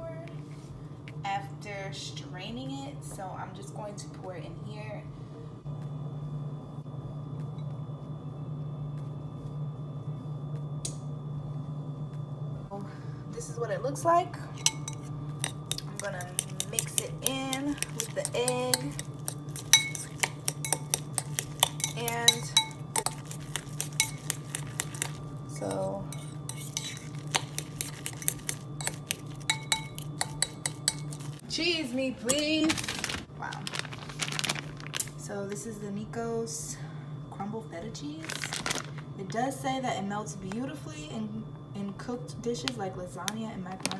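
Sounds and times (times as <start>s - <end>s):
steady low hum: 0.0s - 43.9s
fork scraping ceramic bowl: 14.6s - 31.4s.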